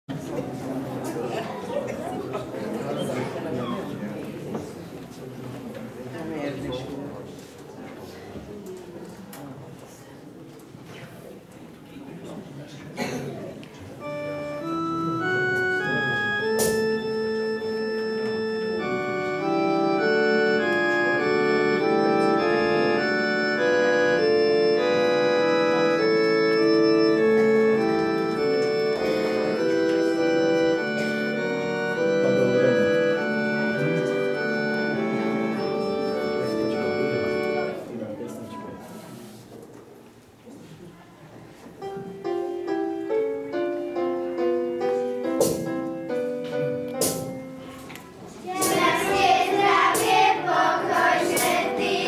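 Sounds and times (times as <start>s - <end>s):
organ music: 14.0s - 38.2s, 41.8s - 47.7s, 48.6s - 52.0s.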